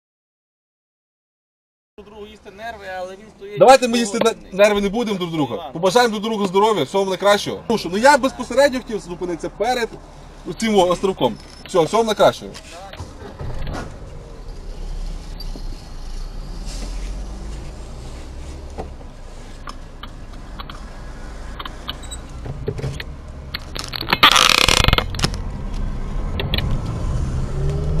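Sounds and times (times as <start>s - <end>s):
car engine idling: 6.8s - 23.9s.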